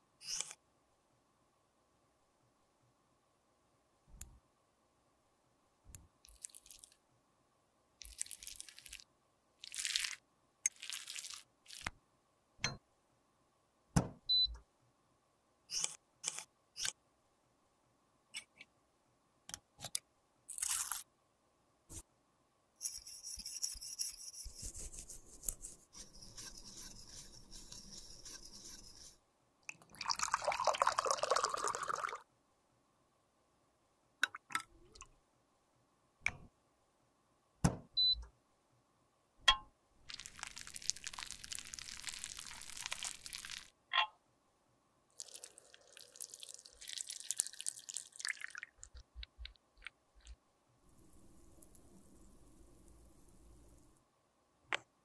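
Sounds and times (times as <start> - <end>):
liquid sounds: 29.7 - 32.2, 40.1 - 43.7, 45.1 - 50.4.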